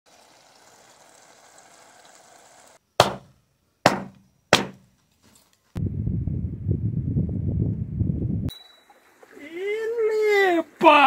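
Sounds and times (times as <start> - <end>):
faint steady hiss: 8.5 - 11.0.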